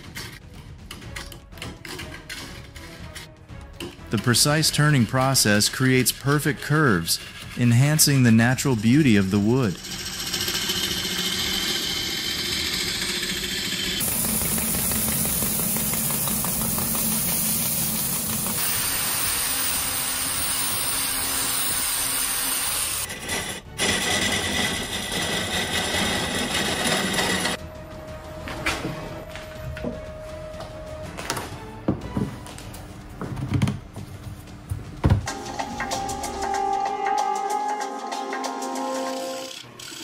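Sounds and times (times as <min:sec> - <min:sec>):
wood lathe cutting a log: 0:04.3 - 0:27.6, 0:39.0 - 0:40.0.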